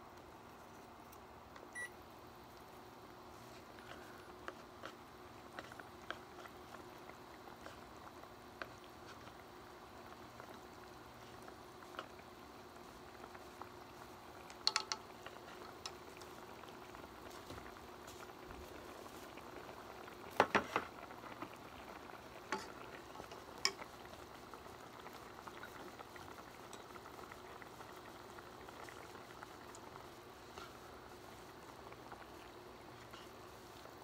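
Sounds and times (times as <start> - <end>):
pot simmering and bubbling: 0.0 - 34.0
chopsticks and tableware clicking: 14.5 - 15.0.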